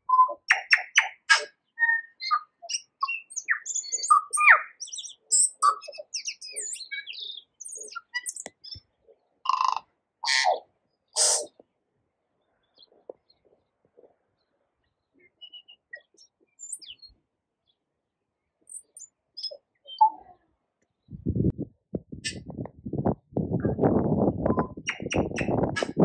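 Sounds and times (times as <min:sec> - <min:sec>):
bird singing clicks and whistles: 0:00.1 - 0:08.9, 0:24.5 - 0:26.0
harsh raspy bird notes: 0:11.2 - 0:11.6, 0:24.6 - 0:26.0.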